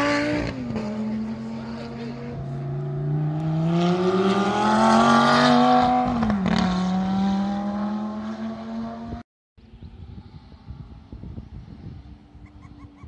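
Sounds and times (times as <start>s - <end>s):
sports car engine accelerating: 0.0s - 9.2s.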